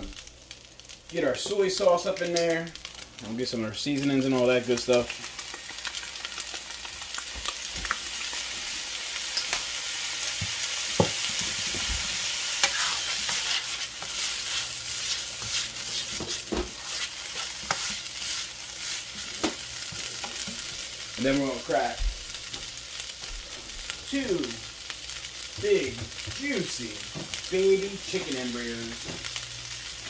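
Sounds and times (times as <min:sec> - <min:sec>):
rice sizzling in a wok: 0:00.0 - 0:30.0
spatula stirring and scraping: 0:11.0 - 0:20.7.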